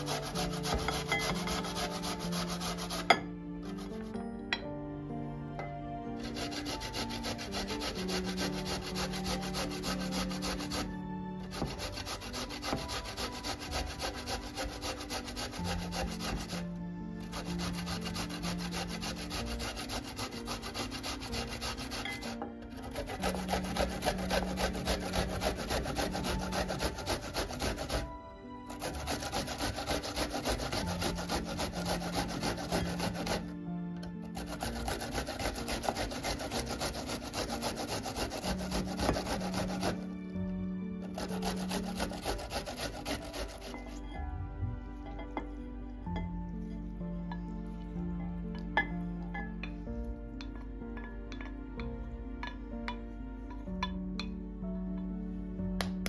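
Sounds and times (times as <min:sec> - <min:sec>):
vegetable scraping on box grater: 0:00.0 - 0:04.1, 0:06.2 - 0:28.1, 0:28.7 - 0:33.5, 0:34.3 - 0:40.1, 0:41.0 - 0:44.1
soft background music: 0:00.0 - 0:56.0.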